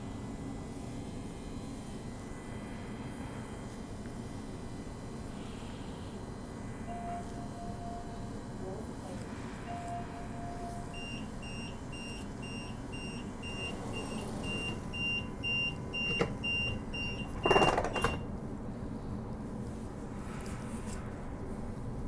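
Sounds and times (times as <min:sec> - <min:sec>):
door warning beeps: 0:06.9 - 0:08.3, 0:09.7 - 0:18.3
train doors shutting with a thud: 0:17.4 - 0:18.3.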